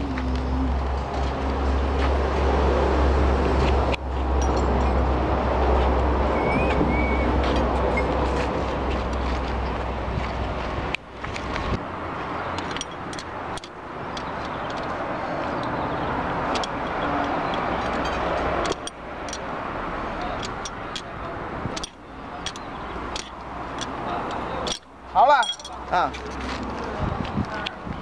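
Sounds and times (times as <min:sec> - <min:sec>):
metal chain and wrench clinks: 0:04.4 - 0:05.0, 0:12.6 - 0:13.7, 0:16.5 - 0:19.4, 0:23.2 - 0:26.6.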